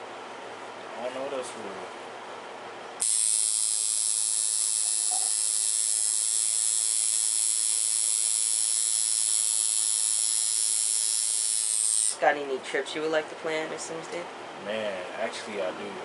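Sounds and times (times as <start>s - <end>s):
tattoo machine buzzing: 3.0s - 12.2s.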